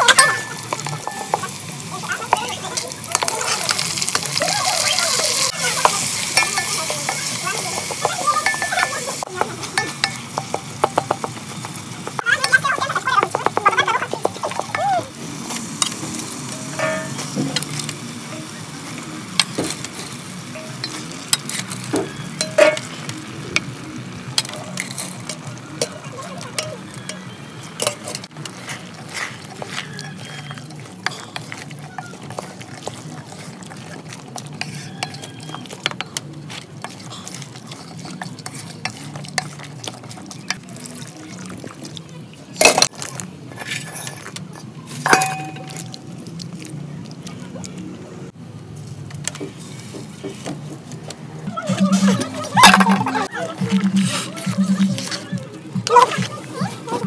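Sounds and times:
wooden spoon scraping metal pot: 0.0 - 12.5, 15.5 - 18.0, 19.4 - 23.1, 24.4 - 41.3, 42.6 - 46.1
frying sizzle: 0.0 - 51.4.

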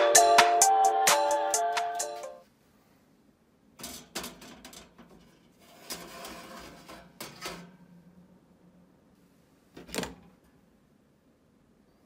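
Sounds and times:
metal scraping on wire rack: 3.8 - 8.1.

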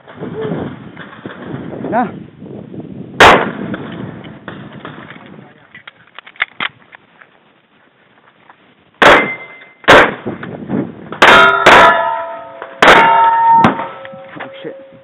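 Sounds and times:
pistol shots: 3.2 - 3.9, 9.0 - 10.3, 12.8 - 14.1
steel targets ringing: 9.0 - 9.9, 11.2 - 15.0.

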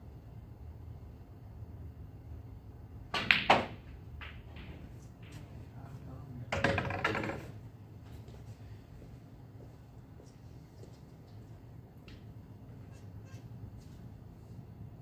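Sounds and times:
snooker balls clicking: 3.1 - 5.5, 6.5 - 7.6
snooker balls clattering: 3.1 - 5.6, 6.5 - 7.6.

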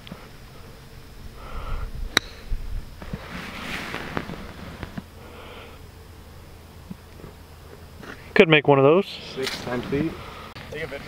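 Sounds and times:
breath-like rushing noise: 1.3 - 4.5, 10.1 - 10.6
golf club striking ball: 2.1 - 2.5.

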